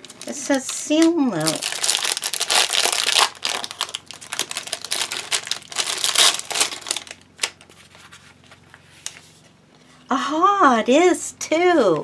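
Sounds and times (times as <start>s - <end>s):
plastic wrapper crinkling: 0.0s - 9.2s.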